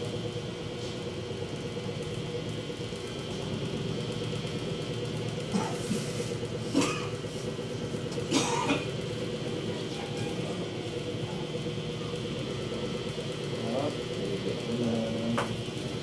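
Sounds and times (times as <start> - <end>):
steady electric hum: 0.0 - 16.0
person coughing: 6.7 - 7.2, 8.3 - 8.9.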